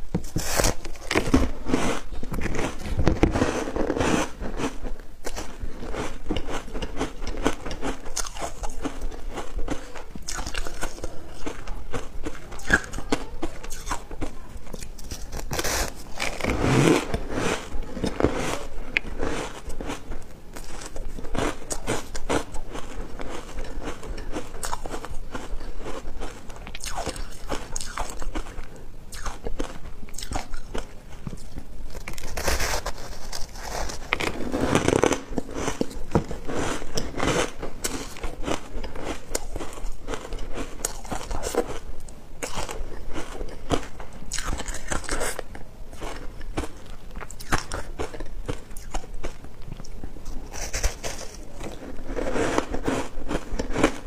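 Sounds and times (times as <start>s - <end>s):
crunching ice close up: 32.0s - 41.8s.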